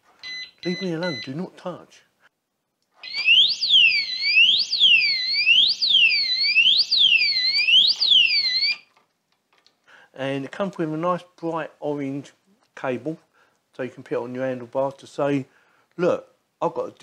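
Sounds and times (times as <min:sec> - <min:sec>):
alarm siren wailing: 0:03.0 - 0:08.9.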